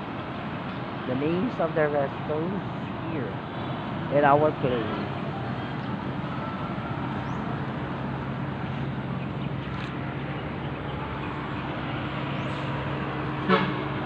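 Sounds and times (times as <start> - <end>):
roadside traffic: 0.0 - 14.0
vehicle engine droning: 0.0 - 14.0.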